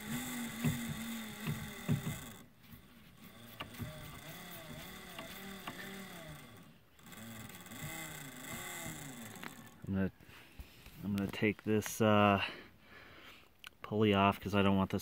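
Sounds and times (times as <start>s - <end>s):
motor hum with knocks: 0.0s - 9.9s
motor whir rising and falling: 0.0s - 9.9s.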